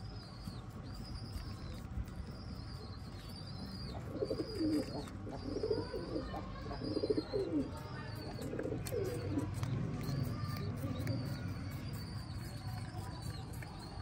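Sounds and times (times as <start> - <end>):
low warbling bird coos: 3.5 - 12.6.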